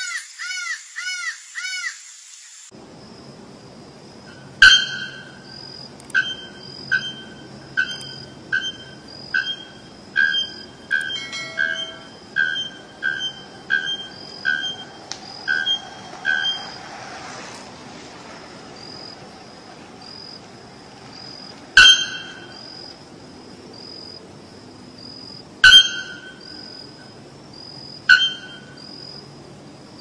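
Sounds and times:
bird clanging calls: 0:06.2 - 0:14.7
faint high chirp: 0:06.2 - 0:14.7.

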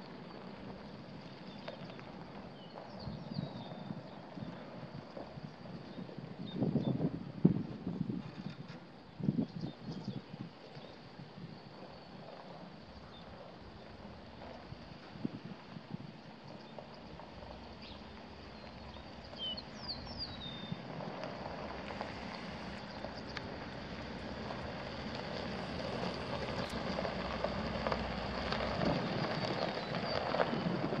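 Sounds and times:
outdoor noise: 0:00.0 - 0:31.0
bird chirping: 0:17.8 - 0:20.8.

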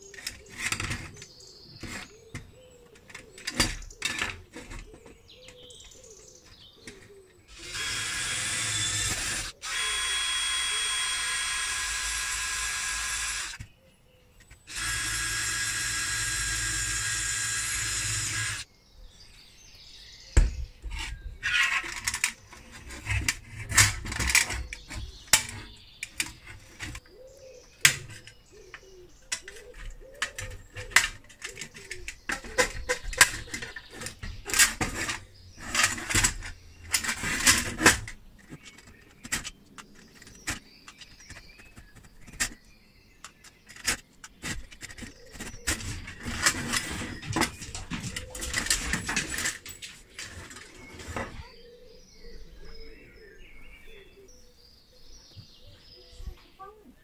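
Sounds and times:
cordless drill boring into steel: 0:07.5 - 0:13.6, 0:14.7 - 0:18.7.

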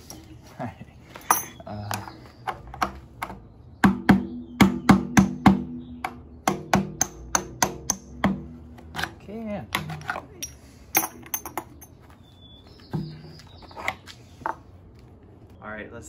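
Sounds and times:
metal pipe knocking and ringing: 0:09.8 - 0:12.0.

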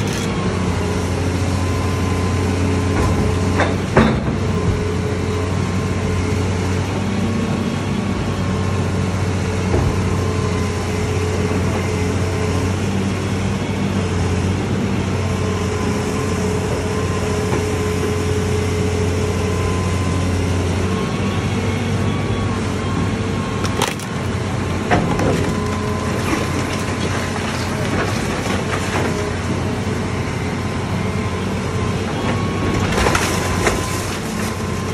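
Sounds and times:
excavator diesel engine: 0:00.0 - 0:34.9.

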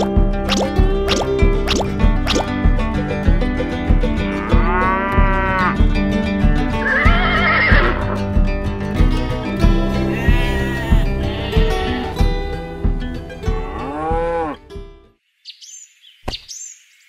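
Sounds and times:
music with steady beat: 0:00.0 - 0:15.1
cow mooing: 0:04.4 - 0:05.8, 0:10.0 - 0:12.5, 0:13.5 - 0:14.6
wavering animal call: 0:09.9 - 0:12.6.

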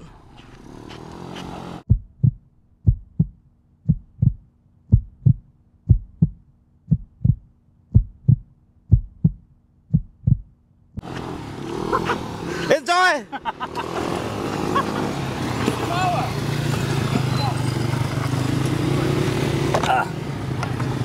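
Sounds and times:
heartbeat thumps: 0:01.8 - 0:10.6.

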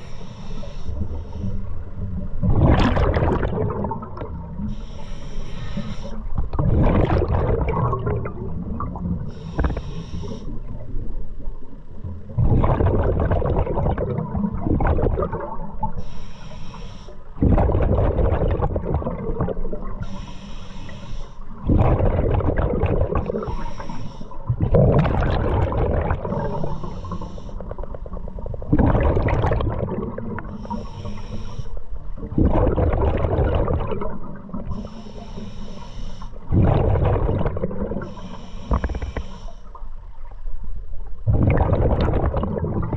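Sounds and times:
diver inhaling through regulator: 0:00.0 - 0:01.8, 0:04.6 - 0:06.3, 0:09.3 - 0:10.6, 0:16.0 - 0:17.4, 0:20.0 - 0:21.6, 0:23.2 - 0:24.5, 0:26.2 - 0:27.8, 0:30.4 - 0:31.9, 0:34.7 - 0:36.5, 0:37.9 - 0:39.8
exhaled bubbles rushing: 0:02.4 - 0:04.6, 0:06.5 - 0:09.3, 0:12.3 - 0:16.0, 0:17.4 - 0:20.0, 0:21.6 - 0:23.5, 0:24.5 - 0:26.8, 0:27.6 - 0:30.6, 0:32.2 - 0:34.8, 0:36.5 - 0:38.0, 0:41.2 - 0:42.9.

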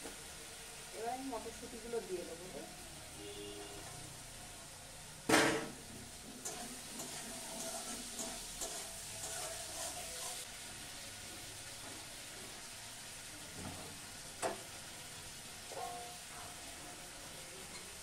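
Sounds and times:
food sizzling in a wok: 0:00.0 - 0:18.0
metal spatula scraping a pan: 0:05.6 - 0:10.5.

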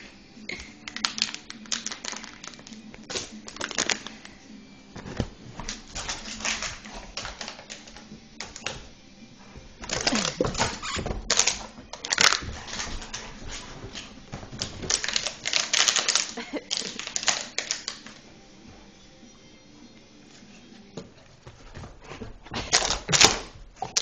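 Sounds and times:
puppy chewing plastic bottle: 0:00.8 - 0:04.3, 0:05.6 - 0:08.8, 0:09.8 - 0:18.2, 0:22.6 - 0:24.0.

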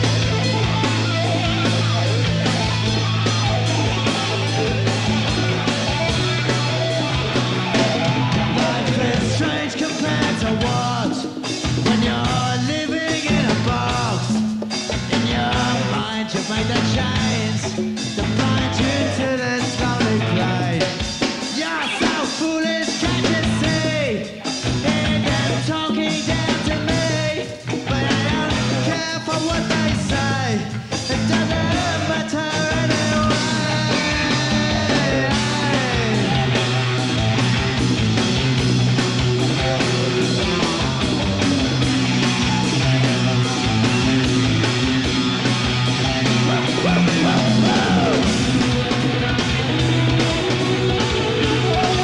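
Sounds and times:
bass line: 0:00.0 - 0:22.2, 0:22.9 - 0:52.0
rock band playing live: 0:00.0 - 0:52.0
person singing: 0:08.4 - 0:14.4, 0:15.1 - 0:36.6, 0:46.4 - 0:48.9, 0:51.4 - 0:52.0.

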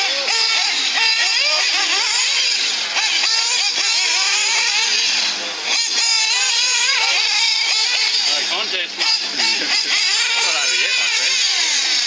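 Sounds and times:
model car engines revving: 0:00.0 - 0:12.0.

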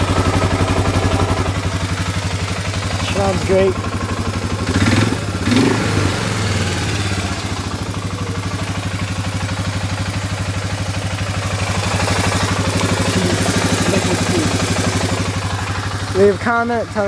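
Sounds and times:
quad bike engine idling: 0:00.0 - 0:17.0.

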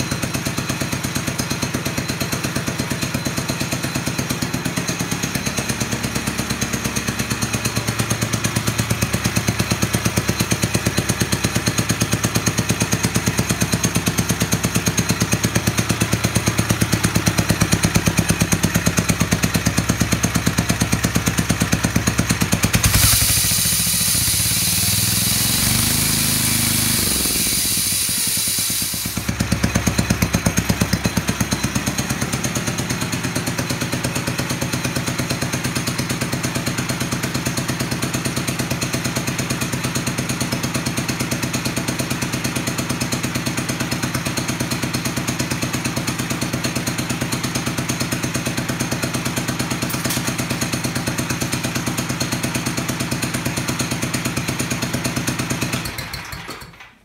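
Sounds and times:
sawmill engine running: 0:00.0 - 0:56.8.

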